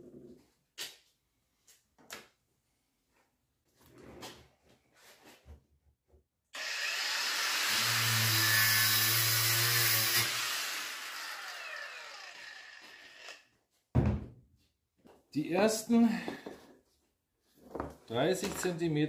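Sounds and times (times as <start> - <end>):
power tool motor running: 6.6 - 13.4.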